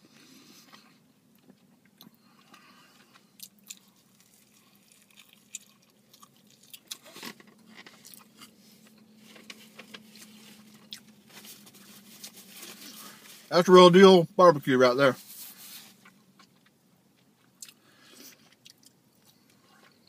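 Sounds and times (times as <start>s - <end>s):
person chewing: 0.2s - 11.2s, 16.0s - 20.0s.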